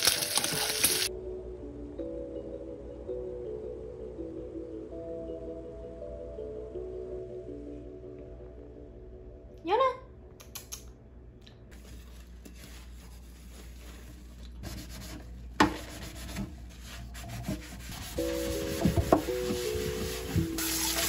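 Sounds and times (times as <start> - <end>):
dishes scrubbed with brush: 11.8 - 21.0.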